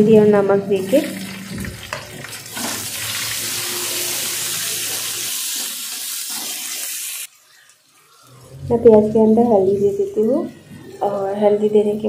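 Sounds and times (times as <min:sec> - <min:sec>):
onions sizzling in oil: 0:01.2 - 0:08.3.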